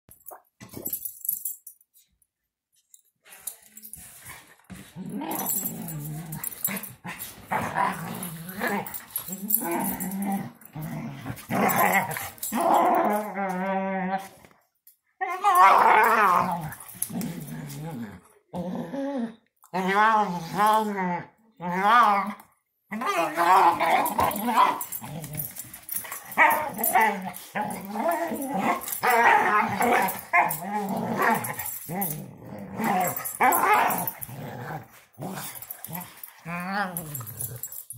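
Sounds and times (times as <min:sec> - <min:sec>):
dogs play growling: 0:03.9 - 0:14.6, 0:15.2 - 0:37.9
dog growling moan: 0:04.9 - 0:06.9, 0:07.5 - 0:14.4, 0:15.2 - 0:37.9.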